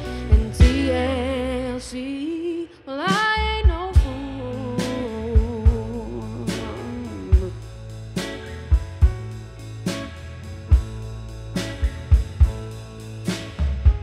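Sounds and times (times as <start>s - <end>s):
drum kit: 0.0s - 2.4s, 3.0s - 14.0s
woman singing lead: 0.0s - 7.6s
bass guitar: 0.0s - 14.0s
piano: 0.0s - 14.0s.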